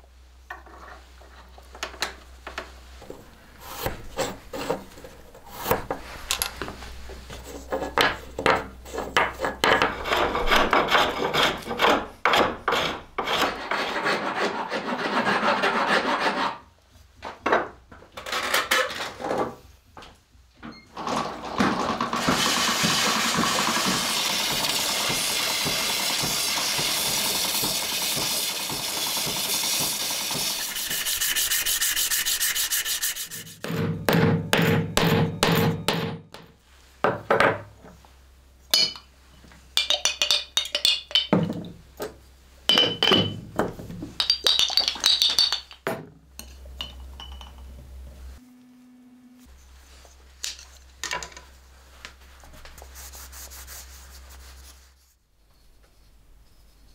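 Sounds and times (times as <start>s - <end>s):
grinding wheel rasping: 22.2s - 33.3s
glass jar knocks and clinks: 42.7s - 47.7s.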